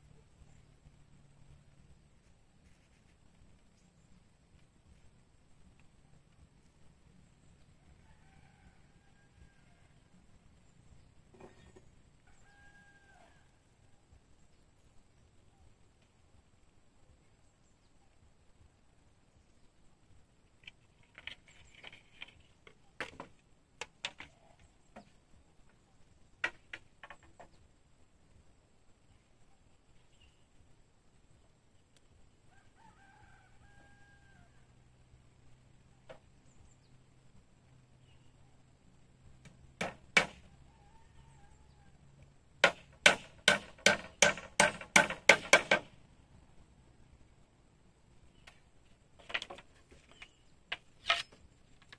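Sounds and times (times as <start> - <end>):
bamboo and wood clicking: 20.5 - 25.8, 26.4 - 27.6, 48.4 - 51.9.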